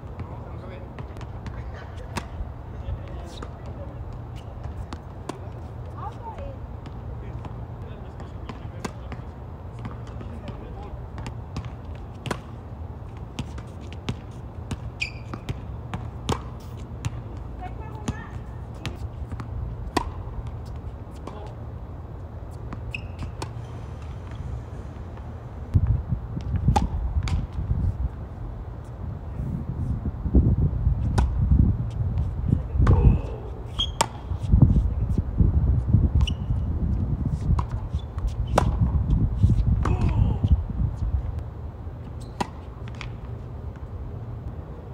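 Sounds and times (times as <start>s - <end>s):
steady low hum: 0.0s - 44.9s
tennis ball bouncing: 0.2s - 2.4s, 3.0s - 21.6s, 22.5s - 25.4s, 26.4s - 27.6s, 31.1s - 31.4s, 32.2s - 34.5s, 37.3s - 40.2s, 42.1s - 43.9s
racket hitting tennis ball: 9.8s - 12.6s, 13.2s - 21.5s, 22.5s - 25.4s, 26.4s - 27.6s, 32.2s - 34.5s, 37.3s - 40.3s, 42.3s - 43.3s
shoe squeak on court: 13.4s - 15.7s, 22.5s - 24.8s, 33.2s - 34.5s, 36.2s - 36.7s, 37.4s - 38.8s, 42.0s - 43.2s.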